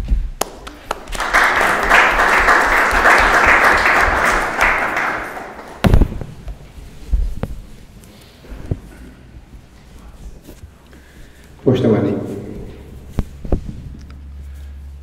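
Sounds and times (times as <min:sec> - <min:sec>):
small audience applauding: 0:00.4 - 0:05.9
microphone handling thumps: 0:05.8 - 0:07.8, 0:13.0 - 0:14.0.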